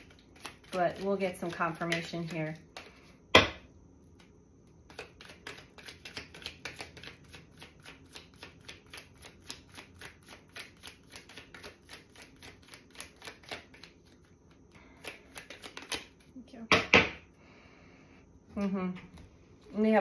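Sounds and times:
cards being shuffled: 4.9 - 14.3, 15.0 - 16.3.

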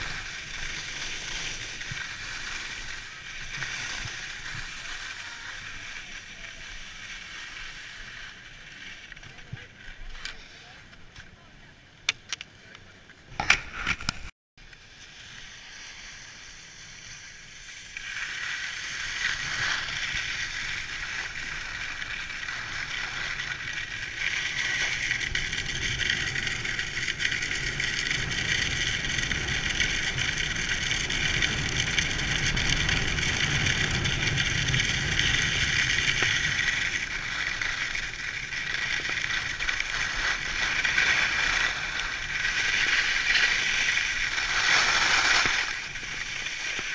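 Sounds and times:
skis scraping over snow: 0.0 - 10.8, 14.8 - 46.9
wind rumble on microphone: 22.9 - 43.3.

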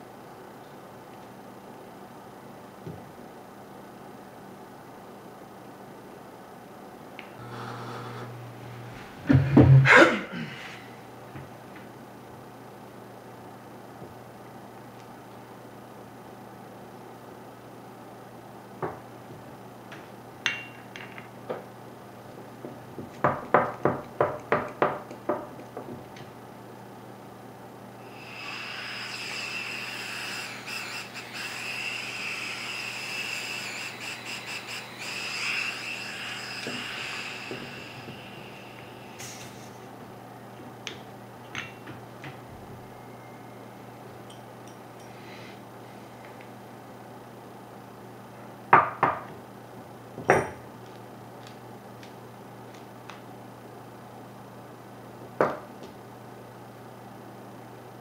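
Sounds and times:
compressed air hissing: 28.1 - 39.9.

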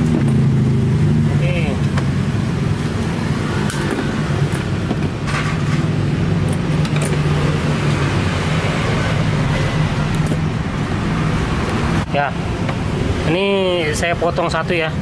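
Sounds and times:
wiring clicks and rustles: 2.7 - 8.2.

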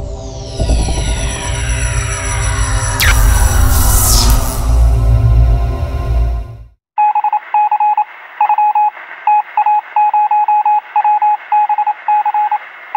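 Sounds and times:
music sting: 0.0 - 6.7.

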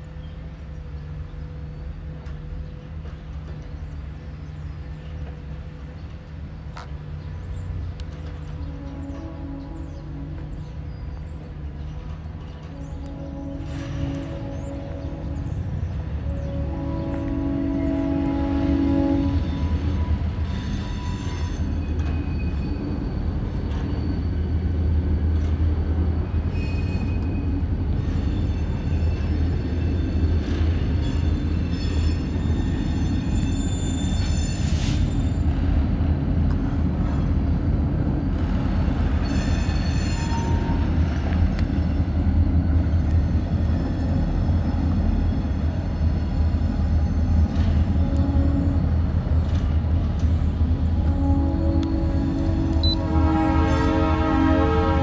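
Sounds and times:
freight train rumbling: 0.0 - 55.0
high-pitched wheel squeals: 17.7 - 24.9, 26.3 - 35.5, 39.2 - 41.0.

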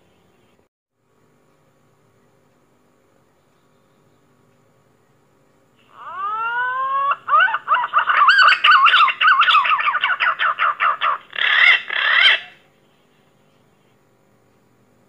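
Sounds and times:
pigeon whistling song: 6.0 - 12.6.

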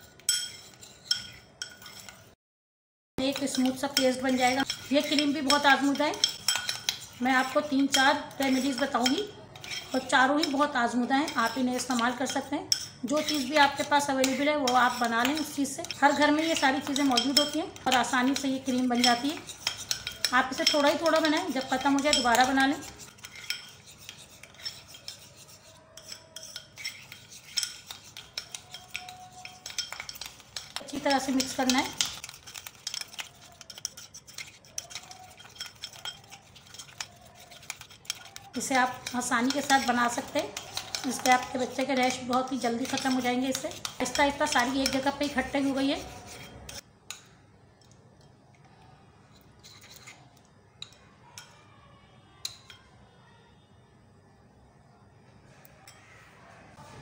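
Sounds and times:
metal spoon scraping paste in bowl: 0.0 - 2.4, 3.2 - 47.3, 49.3 - 51.6
spoon clicking against bowl: 11.3 - 25.2, 26.0 - 45.6.

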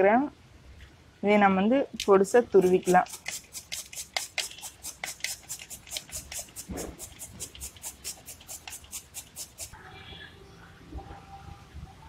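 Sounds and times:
carrot grating on grater: 2.6 - 9.8.

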